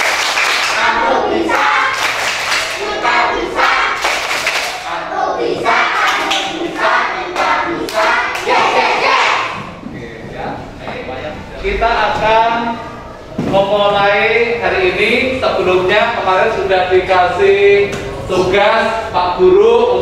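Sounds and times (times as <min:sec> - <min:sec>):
children clapping in rhythm: 0:00.0 - 0:04.9, 0:05.6 - 0:09.4
children chanting in unison: 0:00.4 - 0:09.7.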